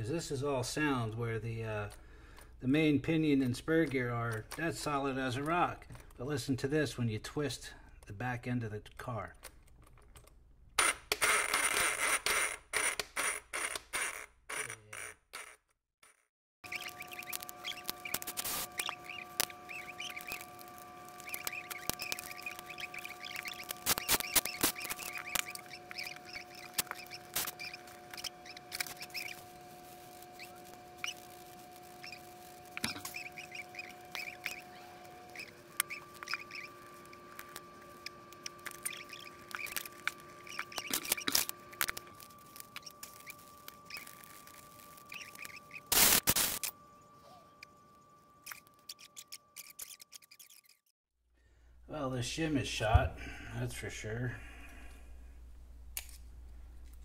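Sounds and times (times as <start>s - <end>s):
faint steady whine: 16.6s - 50.6s, 51.4s - 57.0s
small parts clicking and rattling: 48.5s - 50.8s.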